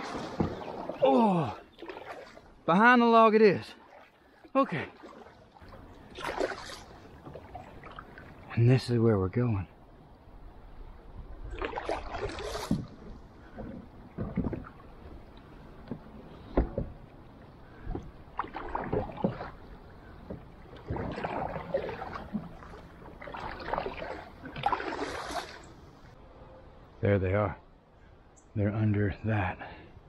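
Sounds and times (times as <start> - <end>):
kayak paddle splashing: 0.0 - 8.7, 11.3 - 26.2
rushing water: 0.0 - 26.2.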